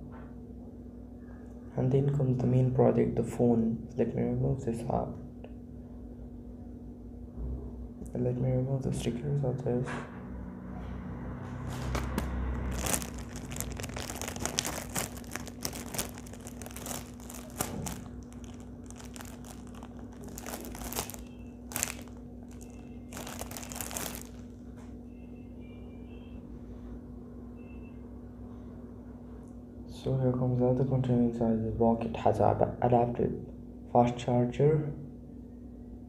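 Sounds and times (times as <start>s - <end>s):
faint steady hum: 0.0s - 36.0s
plastic film crinkling: 11.7s - 24.7s.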